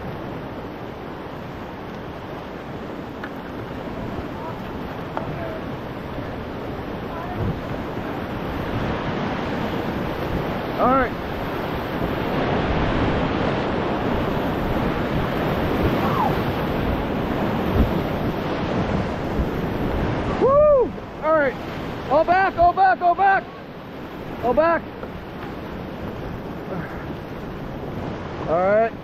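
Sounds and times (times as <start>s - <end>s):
wind buffeting microphone: 0.0s - 22.7s
whitewater rapids rushing: 0.0s - 29.0s
person shouting: 16.0s - 16.3s, 20.4s - 21.0s.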